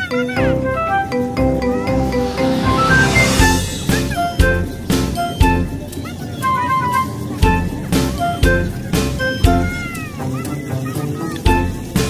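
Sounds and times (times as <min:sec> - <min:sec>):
tune of short separate notes: 0:00.8 - 0:05.3.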